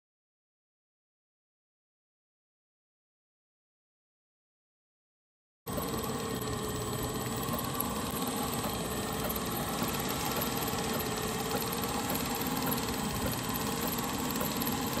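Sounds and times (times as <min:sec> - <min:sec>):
irrigation pump humming: 0:05.7 - 0:15.0.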